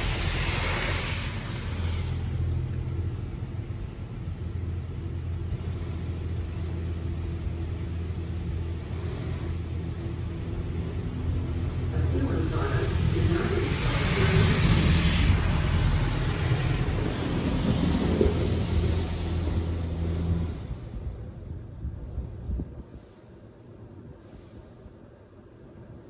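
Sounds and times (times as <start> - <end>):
broad hiss of spray: 0.0 - 4.3, 12.2 - 20.7, 22.8 - 25.1.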